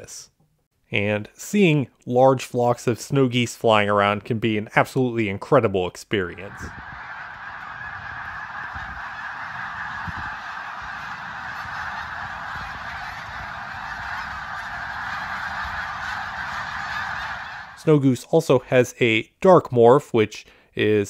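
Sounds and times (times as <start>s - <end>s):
flock of geese honking: 6.2s - 18.0s.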